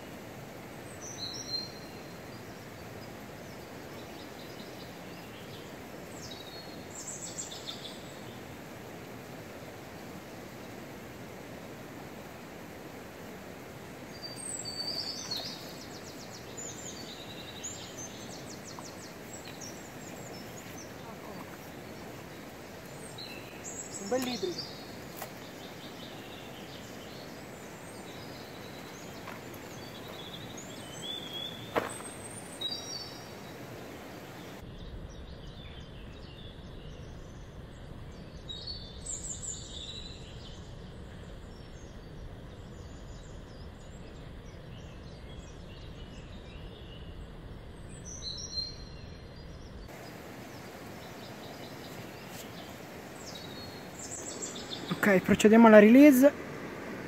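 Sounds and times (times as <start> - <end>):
small birds chirping: 0.8 - 11.0, 12.6 - 57.0
river rush: 2.9 - 34.6, 49.9 - 57.0.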